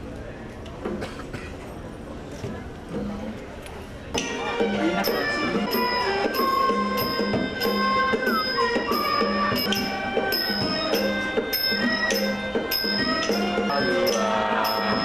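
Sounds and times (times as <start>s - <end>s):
bowed fiddles: 4.2s - 15.0s
flute: 4.2s - 15.0s
hammered dulcimer: 4.2s - 15.0s
hand drum: 4.2s - 15.0s
ringing metallic stroke: 4.2s - 15.0s.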